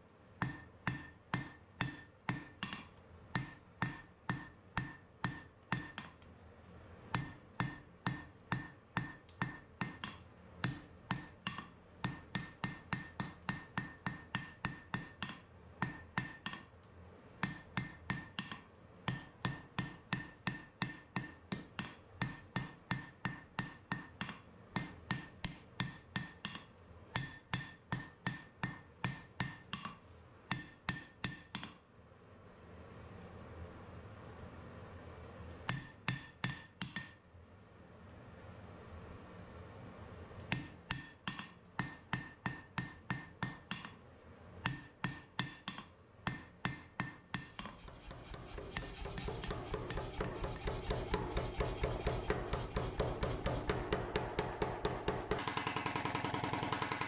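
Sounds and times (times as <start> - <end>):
hammer striking steel on anvil: 0.4 - 6.2, 7.2 - 16.6, 17.4 - 24.1, 27.2 - 29.9, 35.7 - 37.2, 40.5 - 43.9, 44.7 - 57.0.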